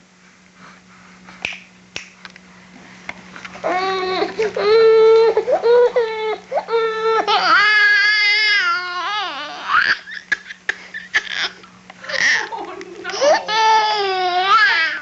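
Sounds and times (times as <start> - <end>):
baby crying: 3.6 - 10.2, 13.2 - 15.0.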